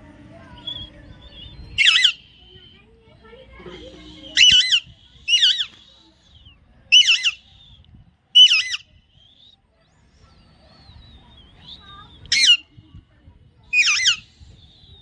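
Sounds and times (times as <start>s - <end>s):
parakeet squawking: 1.8s - 2.2s, 3.8s - 5.7s, 6.9s - 7.5s, 8.4s - 8.9s, 12.3s - 12.6s, 13.7s - 14.3s.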